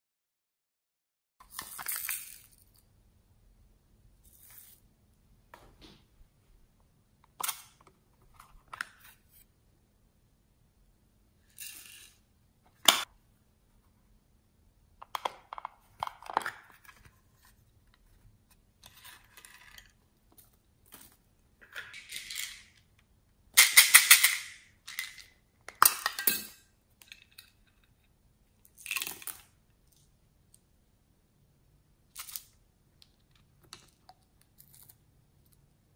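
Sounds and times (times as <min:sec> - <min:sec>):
plastic beads rattling and clinking: 0:01.4 - 0:02.8, 0:20.9 - 0:22.8, 0:23.6 - 0:27.6.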